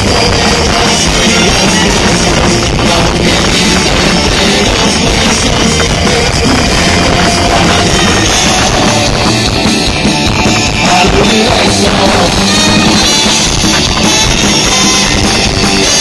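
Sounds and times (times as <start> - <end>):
rock band playing live: 0.0 - 16.0.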